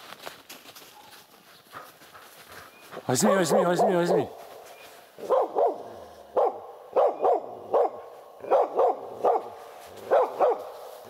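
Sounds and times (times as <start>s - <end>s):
dog barking: 3.3s - 4.3s, 5.2s - 10.8s.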